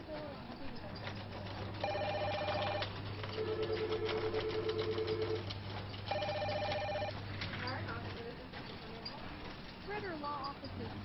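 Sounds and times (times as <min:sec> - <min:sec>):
electronic telephone ringing: 0:01.8 - 0:05.4, 0:06.1 - 0:07.2.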